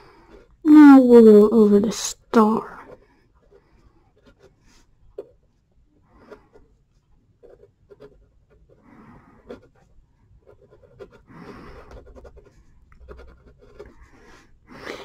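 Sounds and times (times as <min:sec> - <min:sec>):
marker scratching on paper: 0:07.4 - 0:14.5.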